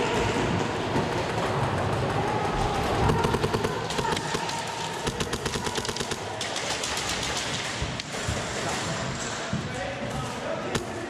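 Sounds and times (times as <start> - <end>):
steady background din: 0.0 - 11.0
airsoft guns firing full-auto: 2.8 - 7.9.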